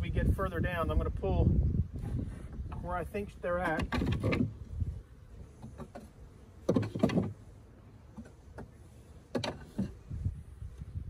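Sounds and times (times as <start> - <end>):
wooden frames scraping and creaking: 2.0 - 10.4.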